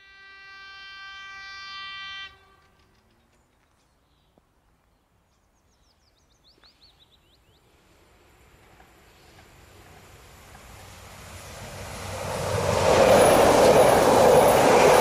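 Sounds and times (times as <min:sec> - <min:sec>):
train horn blast: 0:00.0 - 0:02.9
low rumble of approaching train: 0:06.8 - 0:15.0.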